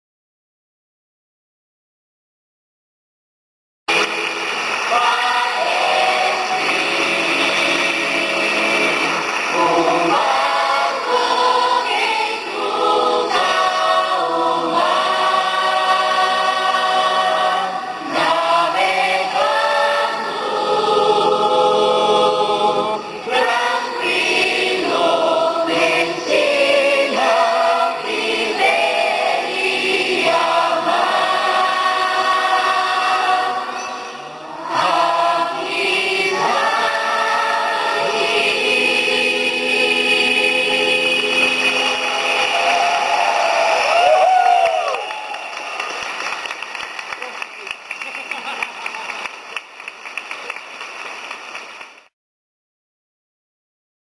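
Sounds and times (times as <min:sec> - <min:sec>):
youth choir singing: 0:03.9 - 0:45.9.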